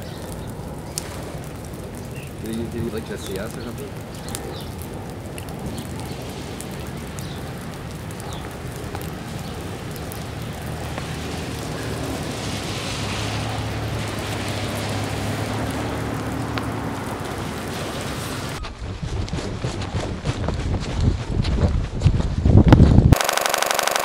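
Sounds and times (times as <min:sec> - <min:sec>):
steady rain: 0:00.0 - 0:18.6.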